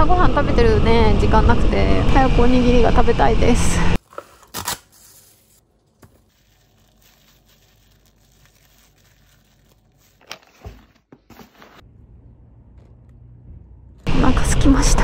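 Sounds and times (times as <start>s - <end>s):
plastic wrap tearing and crinkling: 4.0s - 11.1s.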